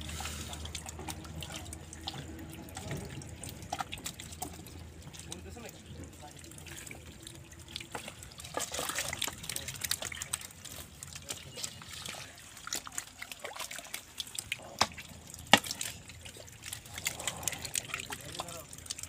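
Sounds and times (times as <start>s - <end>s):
metal bowl scooping: 0.0s - 2.9s
mud and water squelching: 0.0s - 19.0s.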